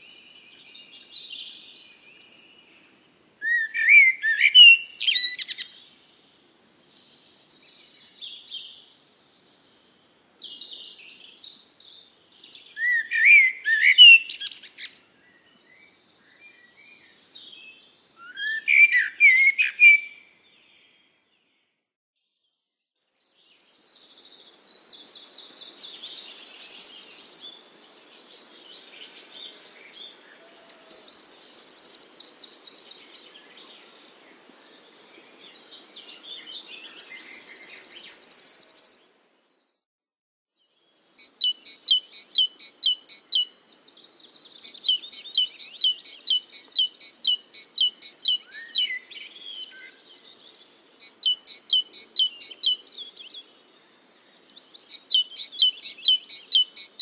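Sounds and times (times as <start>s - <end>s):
songbirds singing: 0.0s - 21.8s, 23.0s - 39.8s, 40.5s - 57.0s
fast repeated bird chirps: 23.1s - 24.3s, 26.2s - 27.5s, 30.7s - 32.1s, 36.9s - 39.0s, 41.2s - 43.4s, 44.6s - 48.9s, 51.0s - 52.7s, 54.9s - 57.0s.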